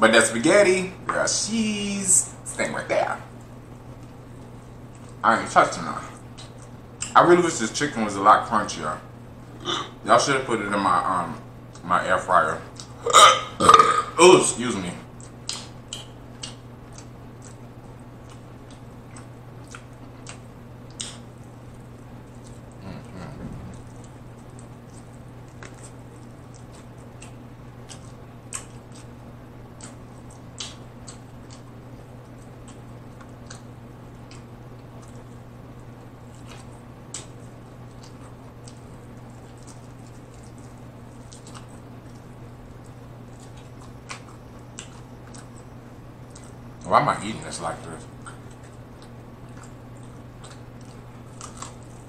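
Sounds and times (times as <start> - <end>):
low hum: 0.6 - 52.0
chewing mouth sounds: 15.1 - 46.9, 48.0 - 52.0.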